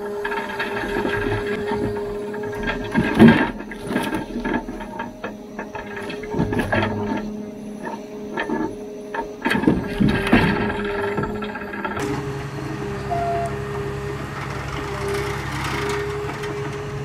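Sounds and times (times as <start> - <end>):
hydraulic and engine whine: 0.0 - 17.0
logs knocking together: 0.2 - 12.2.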